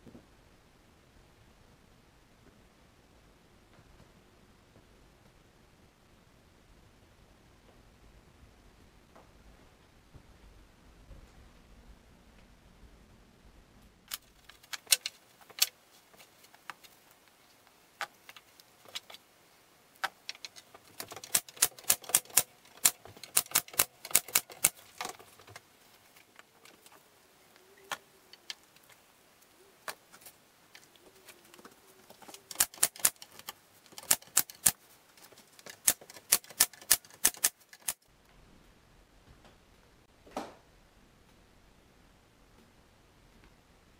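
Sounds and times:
bar clamps clicking and rattling: 0:20.0 - 0:25.5, 0:32.5 - 0:34.8.

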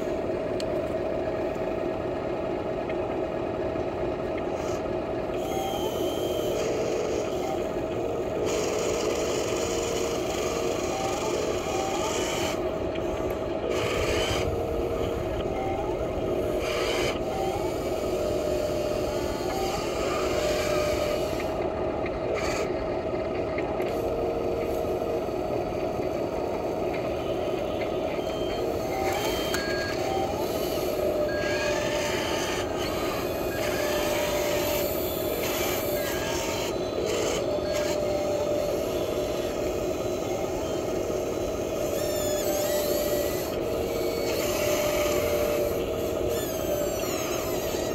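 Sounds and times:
short motor whines: 0:04.2 - 0:47.9
toy machine motors grinding: 0:05.4 - 0:21.6, 0:22.3 - 0:22.7, 0:28.2 - 0:47.9.

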